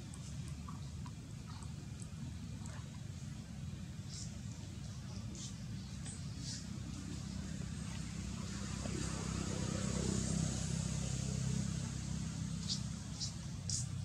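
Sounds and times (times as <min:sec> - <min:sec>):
vehicle engine passing: 0:06.3 - 0:14.0.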